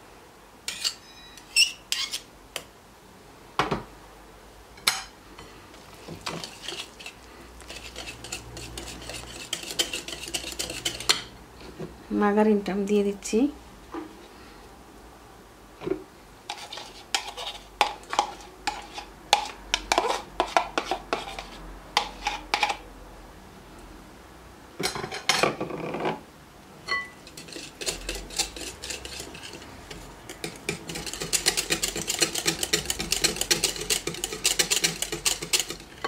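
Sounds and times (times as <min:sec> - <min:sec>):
whisk clinking against glass bowl: 0:07.7 - 0:11.3, 0:26.9 - 0:36.0.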